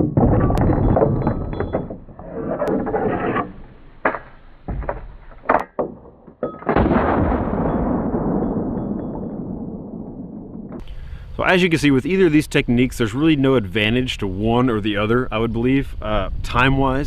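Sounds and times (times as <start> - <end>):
deep drawn-out gunshot: 6.6 - 10.8.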